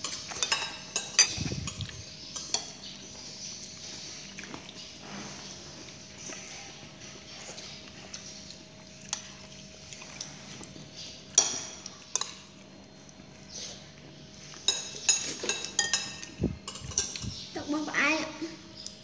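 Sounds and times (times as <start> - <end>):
spoon clinking on ceramic plate: 14.7 - 17.4.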